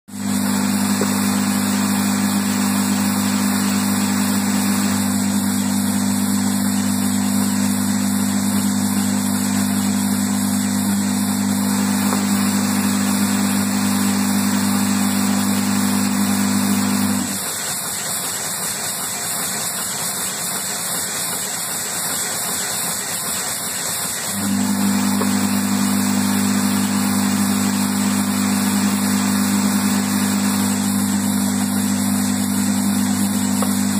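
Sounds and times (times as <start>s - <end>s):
low machinery hum: 0.1s - 17.4s, 24.4s - 33.9s
machinery hiss: 0.1s - 33.9s.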